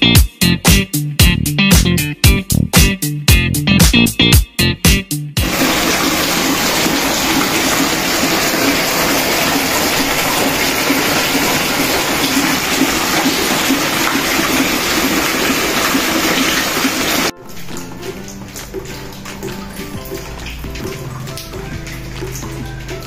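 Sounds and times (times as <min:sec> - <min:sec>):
water rushing from leaking roof: 0:05.4 - 0:23.0.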